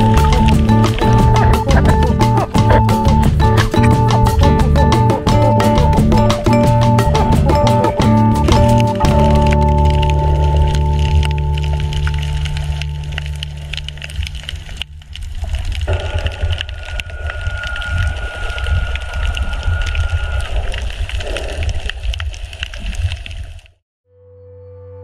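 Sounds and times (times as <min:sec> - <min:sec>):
low underwater rumble: 0:00.0 - 0:23.2
underwater clicking crackle: 0:00.0 - 0:23.8
steady high whine: 0:15.8 - 0:21.0.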